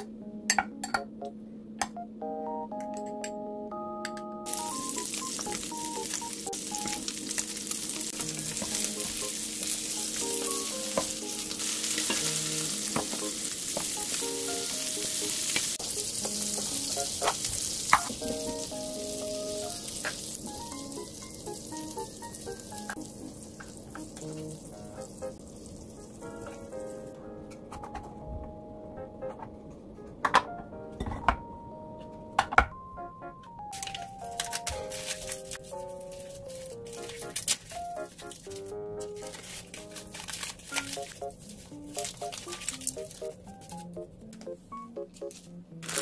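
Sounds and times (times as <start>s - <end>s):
light background music: 0.0s - 46.0s
patties sizzling in oil: 4.5s - 27.2s, 33.7s - 43.8s.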